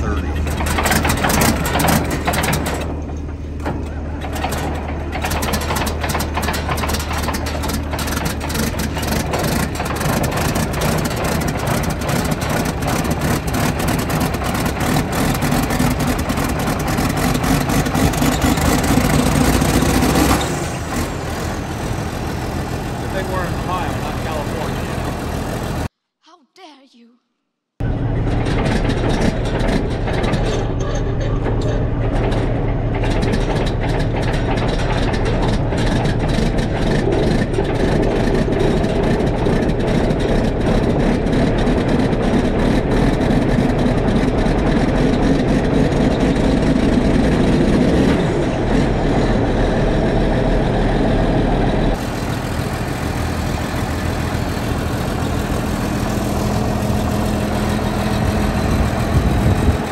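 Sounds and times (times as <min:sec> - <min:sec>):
heavy diesel engine running: 0:00.0 - 0:25.9, 0:27.8 - 0:59.9
rattling and clicking: 0:00.1 - 0:20.6, 0:28.2 - 0:46.6.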